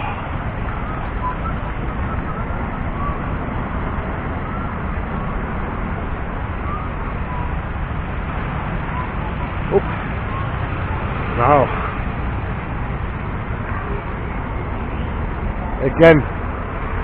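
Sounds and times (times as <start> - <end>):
street traffic rumble: 0.0 - 17.0.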